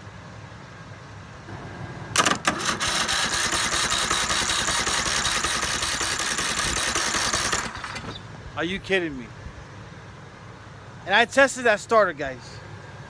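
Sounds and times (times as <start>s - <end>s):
starter motor spinning engine: 2.2s - 8.2s.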